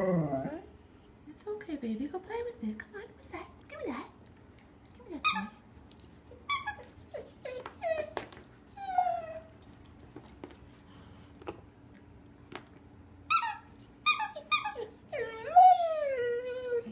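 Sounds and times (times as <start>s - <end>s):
dog whimpering and crying: 0.0s - 1.2s, 5.3s - 9.5s, 13.4s - 16.9s.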